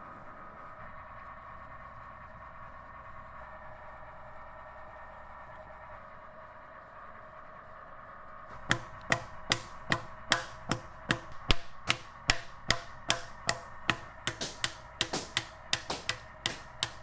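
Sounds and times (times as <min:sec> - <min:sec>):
paddle knocking clay jar: 0:08.5 - 0:17.0.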